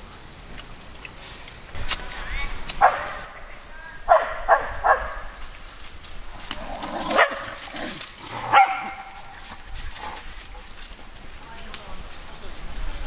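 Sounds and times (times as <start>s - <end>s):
dog barking: 2.8s - 3.2s, 4.1s - 5.2s, 7.1s - 7.6s, 8.5s - 9.2s.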